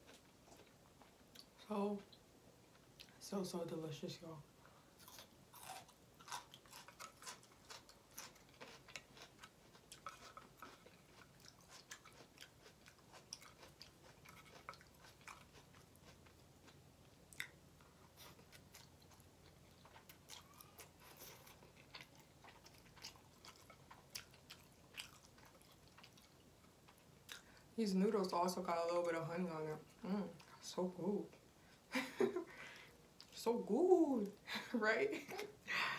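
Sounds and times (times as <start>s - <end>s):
person chewing and lip smacking: 0.0s - 3.2s, 5.0s - 27.7s, 33.2s - 33.4s.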